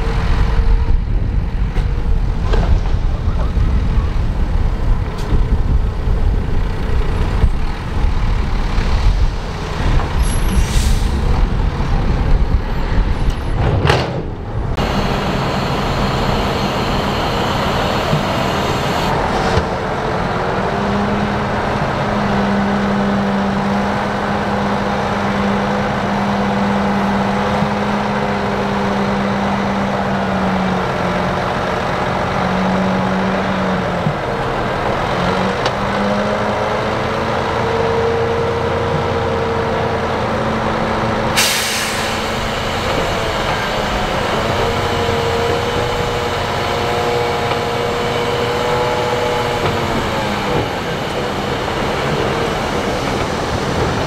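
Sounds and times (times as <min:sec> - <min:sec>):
tracks rumbling and knocking: 0:00.0 - 0:20.6, 0:42.2 - 0:54.0
bulldozer engine under load: 0:00.0 - 0:54.0.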